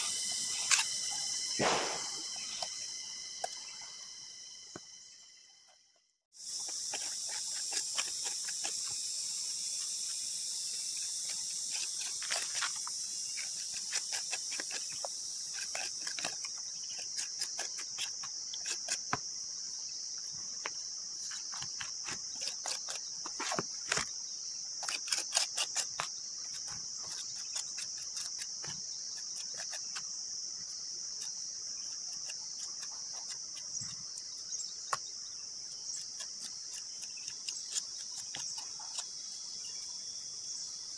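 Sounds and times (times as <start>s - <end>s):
high-pitched insect chorus: 0.0s - 40.9s
trowel scraping wet cement: 6.6s - 9.0s, 10.9s - 19.3s, 21.3s - 24.1s, 24.8s - 30.0s.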